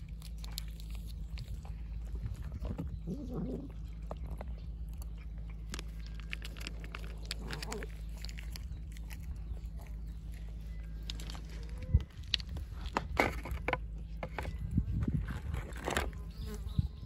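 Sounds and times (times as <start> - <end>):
cats chewing food: 0.0 - 16.2
low steady hum: 0.0 - 17.0.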